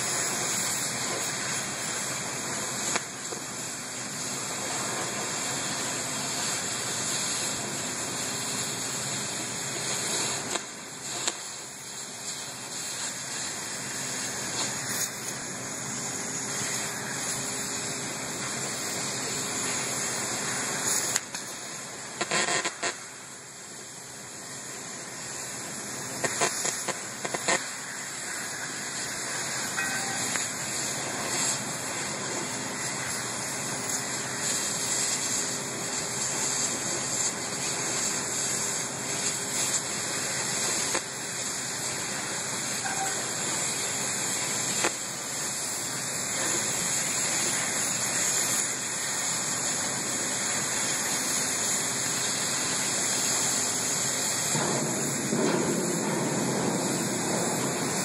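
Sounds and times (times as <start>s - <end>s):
cutting torch hissing: 0.0s - 58.0s.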